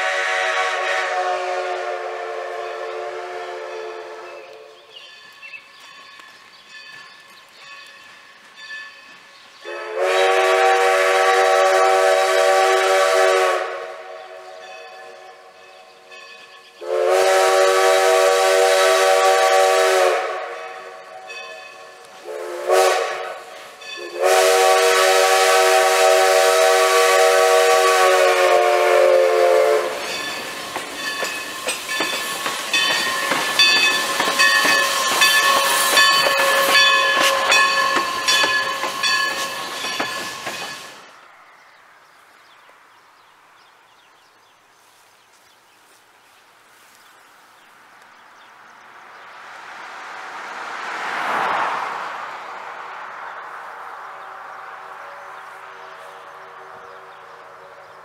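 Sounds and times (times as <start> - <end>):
steam locomotive whistle: 0.0 - 4.9, 9.6 - 41.1
train clanking past: 0.0 - 41.8
rail noise: 0.0 - 58.0.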